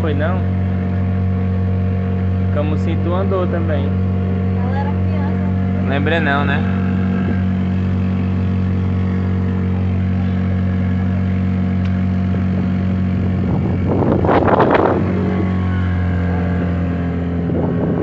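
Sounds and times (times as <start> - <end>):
motorboat engine running: 0.0 - 18.0
rush of wind and water: 12.1 - 18.0.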